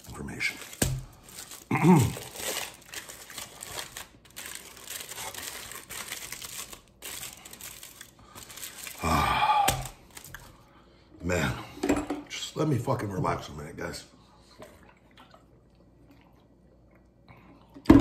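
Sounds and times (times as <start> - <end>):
food wrapper crinkling: 0.0 - 10.5.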